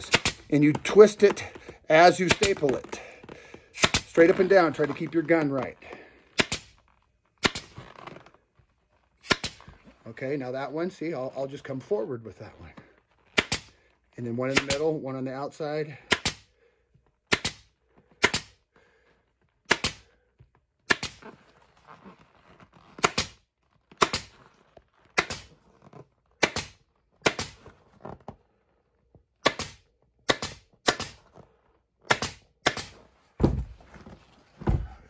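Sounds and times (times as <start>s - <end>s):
pneumatic staple gun shots: 0.0s - 0.4s, 3.8s - 4.0s, 6.4s - 6.7s, 7.4s - 7.7s, 9.2s - 9.6s, 19.7s - 20.0s, 20.9s - 21.2s, 29.4s - 31.2s, 32.1s - 32.9s
vinyl rustling: 0.0s - 14.2s, 20.3s - 29.4s, 32.9s - 35.0s.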